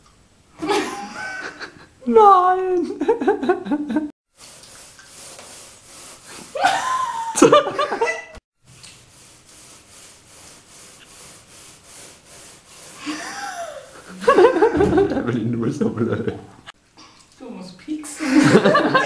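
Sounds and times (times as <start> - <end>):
woman laughing: 0.6 - 4.1, 6.5 - 8.4, 13.0 - 15.3, 18.2 - 19.0
balloon rubbing against hair: 4.3 - 6.6, 8.7 - 14.1.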